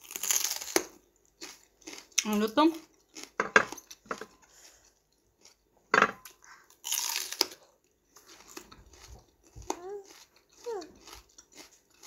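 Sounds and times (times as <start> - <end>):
crunchy biting and chewing: 0.0 - 2.3, 3.0 - 4.1, 6.6 - 12.0.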